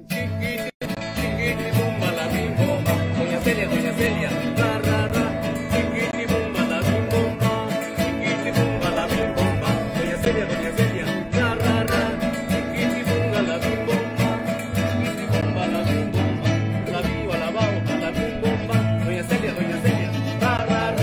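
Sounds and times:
mariachi band playing: 0:00.0 - 0:21.0.

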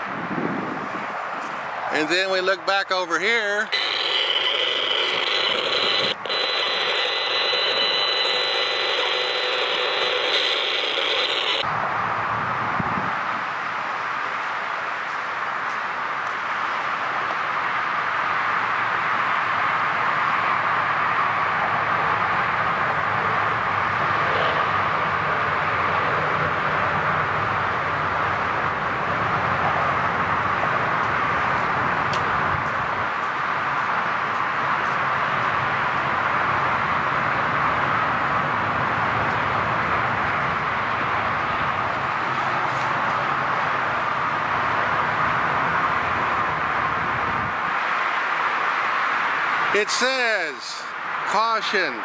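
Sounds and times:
steady static hiss: 0:03.4 - 0:11.7, 0:49.2 - 0:52.0
electronic buzz with high whine: 0:03.7 - 0:11.7.

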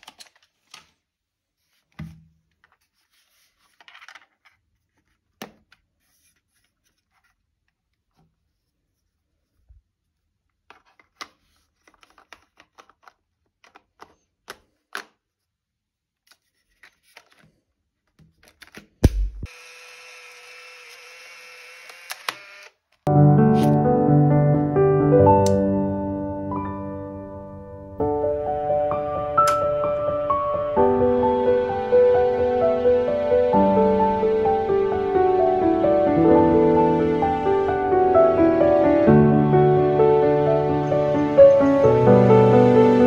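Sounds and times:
camera motor whirring: 0:19.5 - 0:22.8
sharp camera click: 0:21.7 - 0:22.8.

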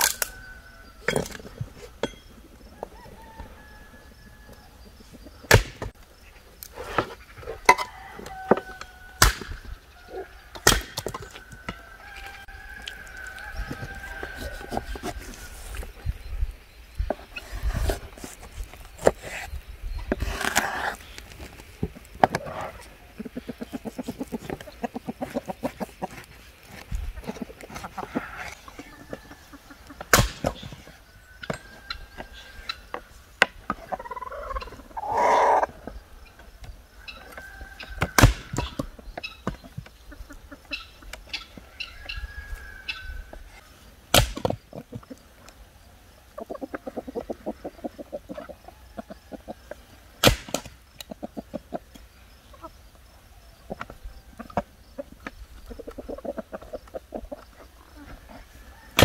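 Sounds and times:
chickens clucking: 0:00.0 - 0:44.0, 0:44.6 - 0:59.0
axe chopping firewood: 0:05.5 - 0:06.0, 0:09.2 - 0:09.6, 0:10.6 - 0:11.3, 0:30.0 - 0:30.7, 0:38.0 - 0:38.9, 0:44.1 - 0:44.6, 0:50.2 - 0:50.8.

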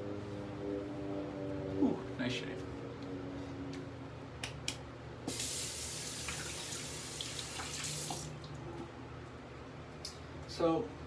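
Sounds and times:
tap water running into sink: 0:05.3 - 0:08.3.

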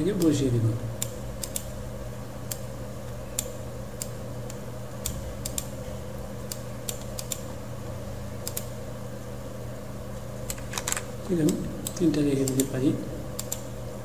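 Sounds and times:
computer mouse clicks: 0:01.0 - 0:01.7, 0:03.4 - 0:05.7, 0:06.5 - 0:07.5, 0:08.4 - 0:08.7, 0:13.4 - 0:13.7.

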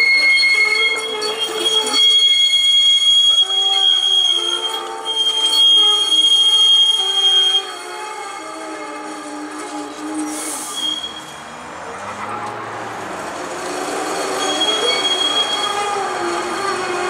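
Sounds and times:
streetcar wheels squealing on rails: 0:00.0 - 0:17.0
short hiss: 0:10.2 - 0:10.8.

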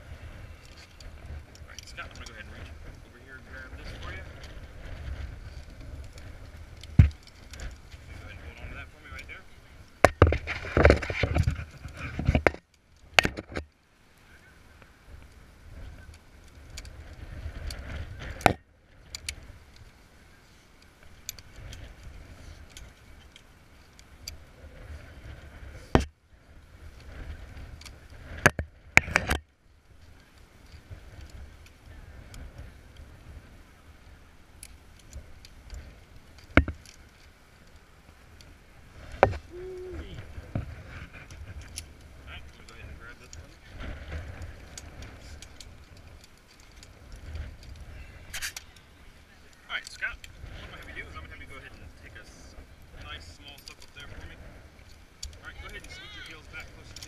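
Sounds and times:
wind rumble on microphone: 0:00.0 - 0:13.6, 0:14.2 - 0:57.0
metal climbing gear clicking: 0:41.3 - 0:48.9, 0:53.4 - 0:54.1, 0:54.8 - 0:57.0.

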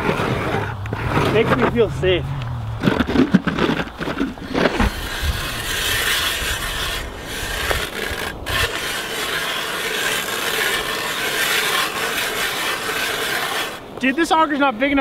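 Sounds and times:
ice auger scraping through ice: 0:00.0 - 0:01.9, 0:02.8 - 0:14.6.

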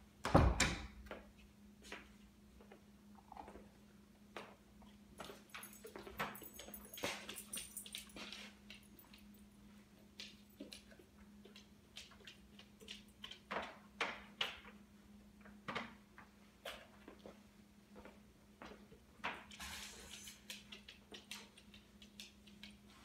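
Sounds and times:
dog claws clicking on floor: 0:04.4 - 0:14.8, 0:18.6 - 0:23.0.

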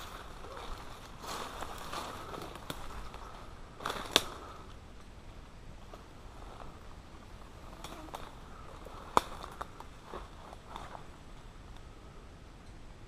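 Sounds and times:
footsteps through leaf litter: 0:00.0 - 0:04.3
leaves and stems brushing: 0:00.0 - 0:04.6, 0:05.8 - 0:11.2.

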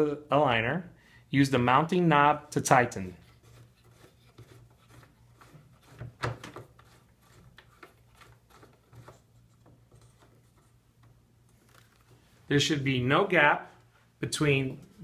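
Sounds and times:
faint clicks and rubs: 0:03.2 - 0:12.3.

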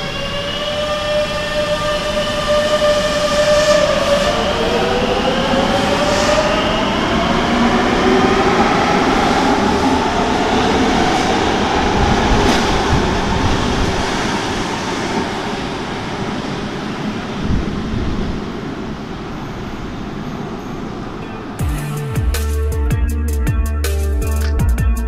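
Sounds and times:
wheels rumbling on rail: 0:00.0 - 0:23.0.

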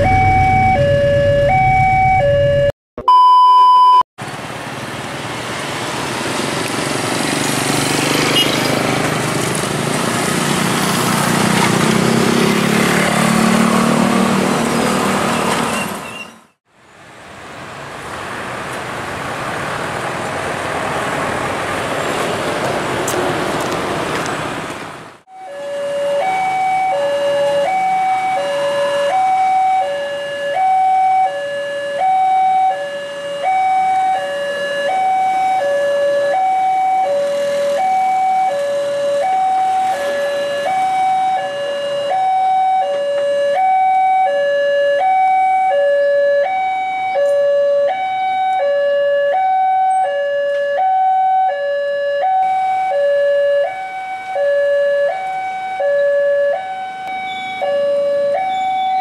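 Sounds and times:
two-tone level crossing alarm: 0:00.0 - 0:04.0, 0:25.3 - 0:59.0.

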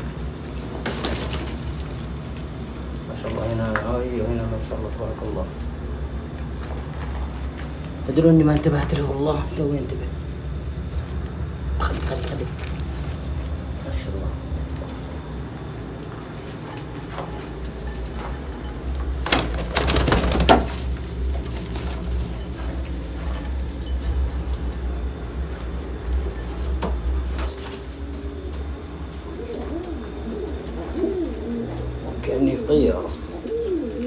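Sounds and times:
fan drone: 0:00.0 - 0:34.0
pigeons cooing: 0:11.6 - 0:34.0
rustling clatter: 0:14.5 - 0:32.1.

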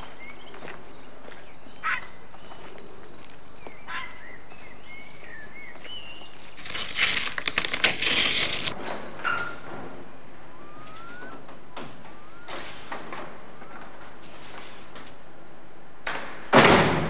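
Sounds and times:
birds chirping: 0:00.0 - 0:07.2, 0:10.4 - 0:14.0
light steps on gravel: 0:05.8 - 0:08.8
loud crunching clattering noise: 0:06.6 - 0:09.9.

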